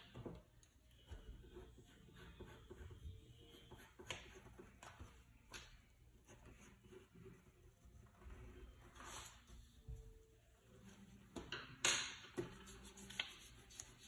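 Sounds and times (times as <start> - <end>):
pencil scratching on paper: 1.1 - 5.2, 6.1 - 9.5, 12.4 - 14.0.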